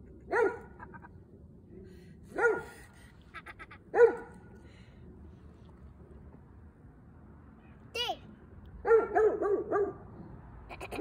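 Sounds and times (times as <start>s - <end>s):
dog barking: 0.3s - 0.8s, 2.3s - 2.8s, 3.9s - 4.4s, 8.8s - 10.0s.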